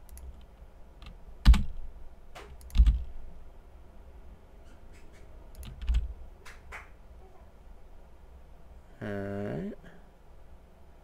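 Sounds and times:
keyboard key presses: 0.0 - 1.8, 2.4 - 3.1, 5.5 - 6.1.

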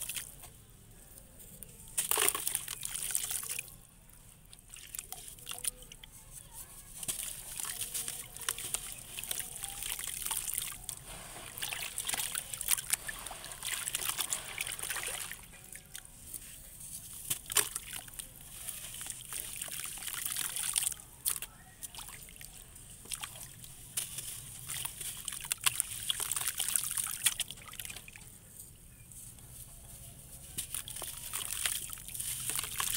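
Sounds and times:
water sloshing and splashing: 2.0 - 3.8, 7.0 - 16.1, 17.2 - 28.2, 30.6 - 32.9
clay lumps crackling: 4.4 - 28.3, 28.9 - 32.9.

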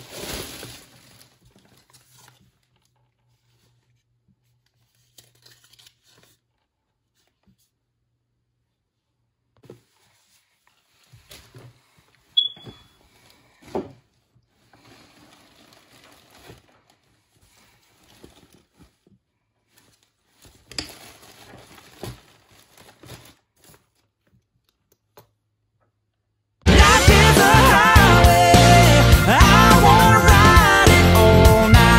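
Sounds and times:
fabric rustling: 0.0 - 4.0, 9.6 - 24.2
brief high squeak: 12.4 - 13.0.

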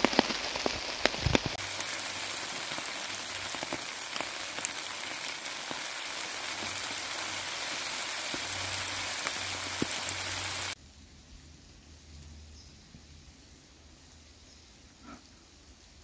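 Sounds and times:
drops ticking on leaves: 0.0 - 10.8
rain on wet leaves: 0.0 - 12.2, 15.2 - 16.0.

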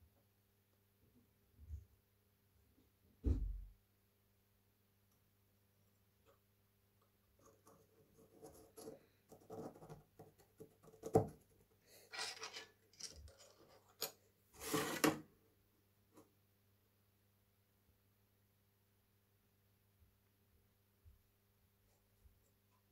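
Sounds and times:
wood and metal scraping: 12.0 - 15.2.

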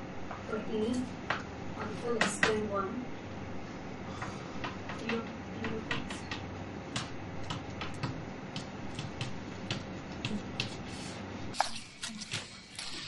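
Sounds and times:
chalk tapping on a chalkboard: 7.0 - 10.8.

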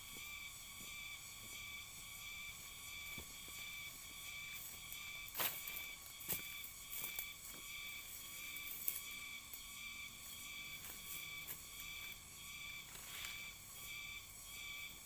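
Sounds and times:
insect chorus: 0.0 - 15.0
footsteps crunching through dry grass: 2.8 - 9.0, 10.8 - 12.1.

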